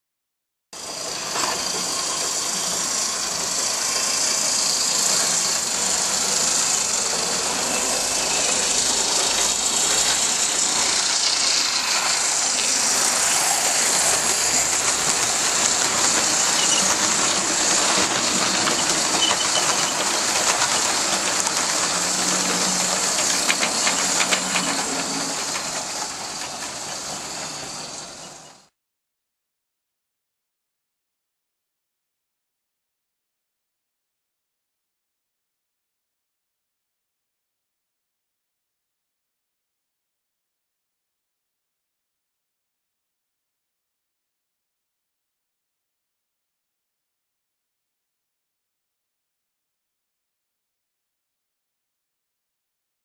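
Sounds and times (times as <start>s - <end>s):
model train motor whir: 0.8s - 28.7s
wheels clicking over rail joints: 0.8s - 28.7s
wheels hissing on rail: 0.8s - 28.8s.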